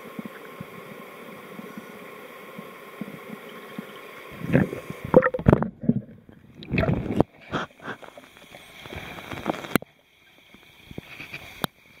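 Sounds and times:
water sloshing against camera: 4.3 - 9.8.

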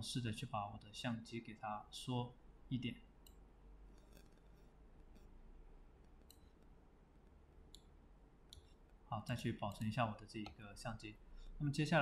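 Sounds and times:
low room hum: 0.0 - 12.0
faint computer mouse clicks: 6.0 - 6.7.

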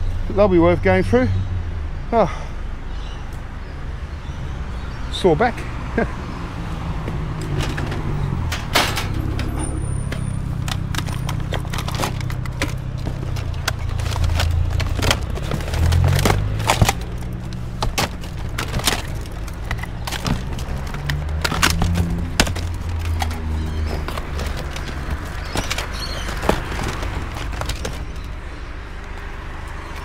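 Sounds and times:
plastic junk knocking and clattering: 7.3 - 28.4.

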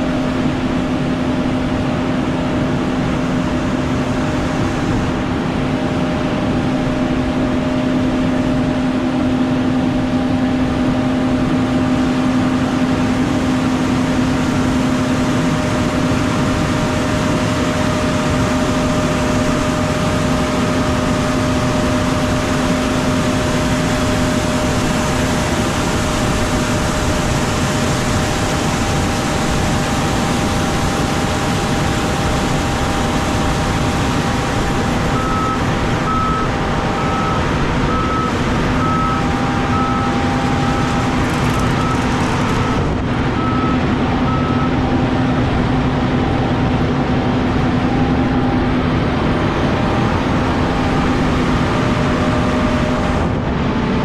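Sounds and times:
steady mechanical hum: 0.0 - 54.0
regular alarm beeping: 35.1 - 45.4.

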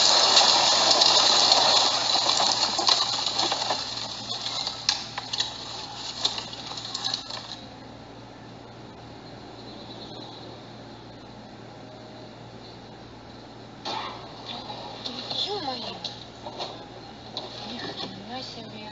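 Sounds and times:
breaking glass and debris clatter: 0.0 - 7.6
glass fragments tinkling: 0.0 - 7.6.

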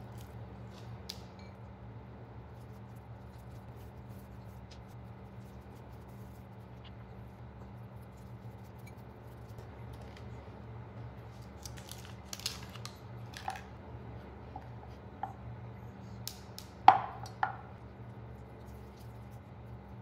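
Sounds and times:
wrapper crinkling: 11.5 - 13.6.

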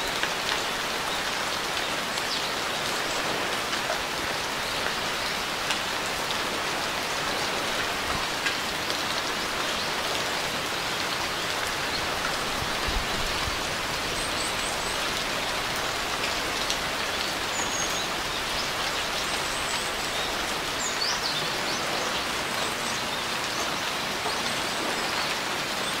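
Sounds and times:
steady rain falling: 0.0 - 26.0.

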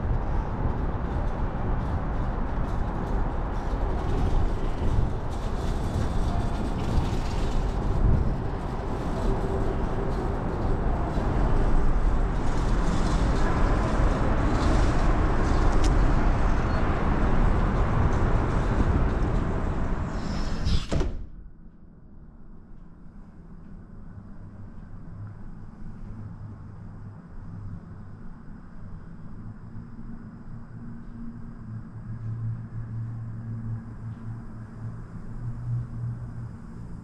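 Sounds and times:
wind buffeting microphone: 0.0 - 20.2.

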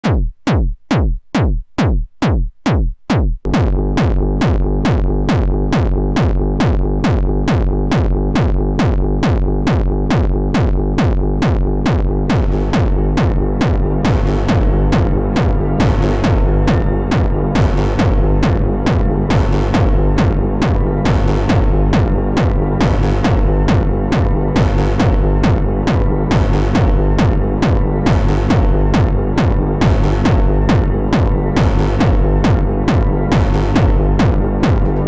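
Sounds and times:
kick drum thumping: 0.0 - 35.0
synth bass line: 3.4 - 35.0
sustained synth tones: 12.4 - 35.0.

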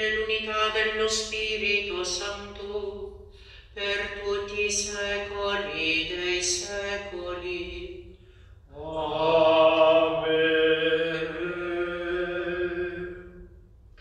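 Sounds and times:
liturgical chant: 3.8 - 13.5.

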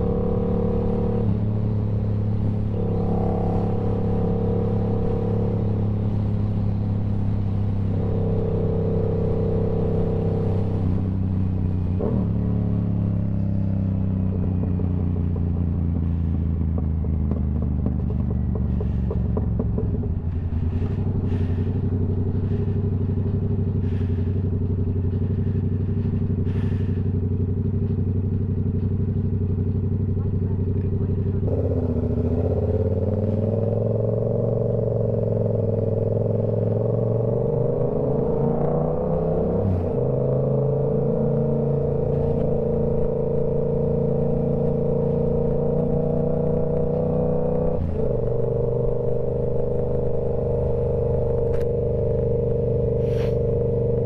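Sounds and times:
motorcycle engine cruising: 0.0 - 54.0.

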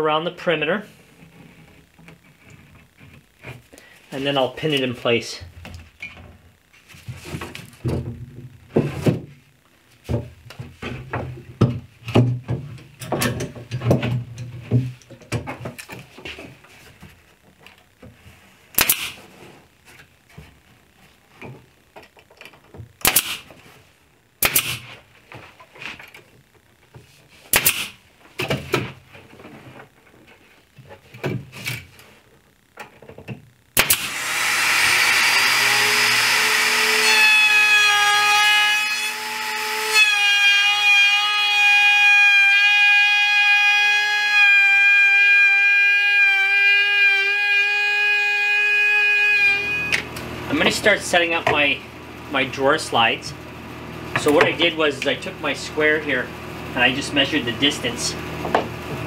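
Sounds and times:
pin nailer firing: 18.8 - 19.2, 23.0 - 23.5, 24.4 - 24.9, 27.5 - 28.0, 33.8 - 38.3
power tool running: 33.8 - 50.4.

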